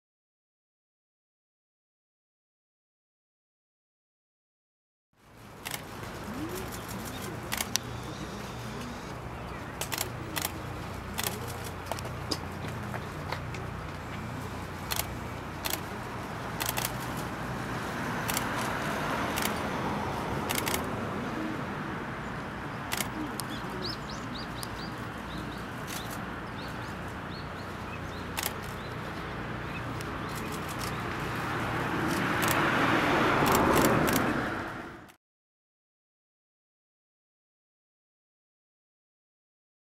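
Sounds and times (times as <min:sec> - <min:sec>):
sharp clicks: 0:19.4 - 0:19.6, 0:20.5 - 0:20.9, 0:32.1 - 0:32.6, 0:33.4 - 0:34.3.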